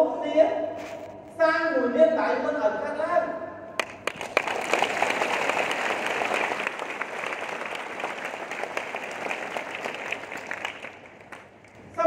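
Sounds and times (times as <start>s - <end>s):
audience applauding: 3.8s - 11.8s.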